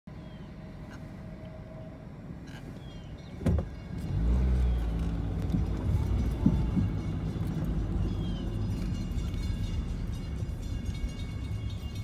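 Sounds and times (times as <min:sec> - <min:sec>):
car engine speeding up: 0:04.0 - 0:09.4.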